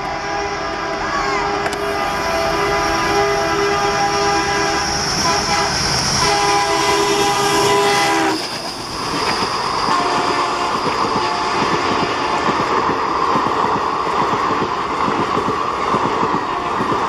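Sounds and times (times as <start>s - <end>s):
locomotive horn: 0.0s - 8.4s, 9.8s - 12.8s, 16.4s - 17.0s
train coaches clattering past: 0.9s - 17.0s.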